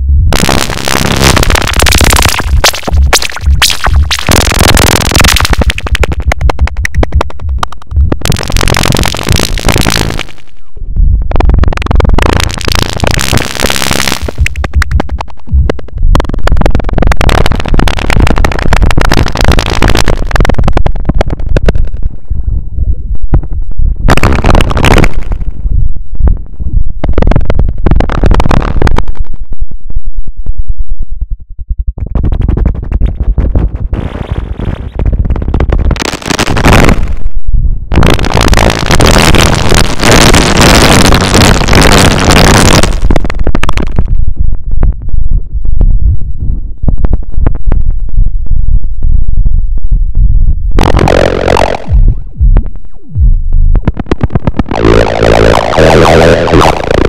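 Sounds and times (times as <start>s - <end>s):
harsh electronic noise bursts: 0.0s - 22.2s, 24.0s - 25.6s, 27.0s - 29.3s, 32.0s - 44.6s, 50.7s - 57.0s
deep synth bass: 0.0s - 57.0s
falling synth sweep: 50.8s - 53.3s, 54.0s - 57.0s.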